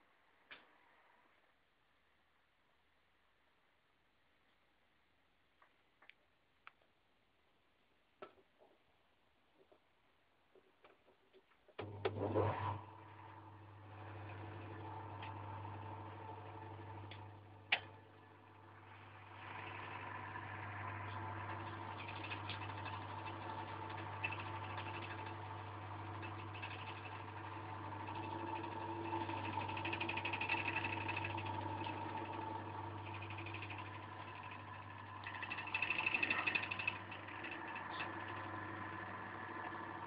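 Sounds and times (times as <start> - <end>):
electric motor humming and whirring: 11.8 - 40.0.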